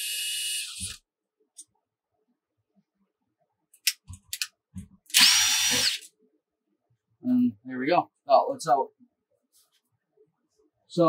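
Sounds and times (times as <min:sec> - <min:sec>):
cordless drill running: 0:00.0 - 0:00.9, 0:05.1 - 0:06.1.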